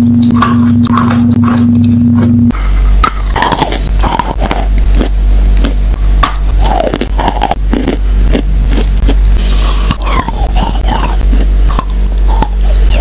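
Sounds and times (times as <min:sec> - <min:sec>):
steady low hum: 0:00.0 - 0:13.0
chalk crunching and chewing: 0:03.0 - 0:05.8, 0:06.5 - 0:13.0.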